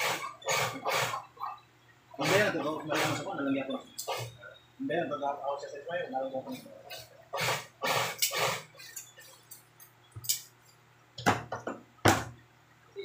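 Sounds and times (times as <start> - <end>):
rasping sounds: 2.2 - 3.3.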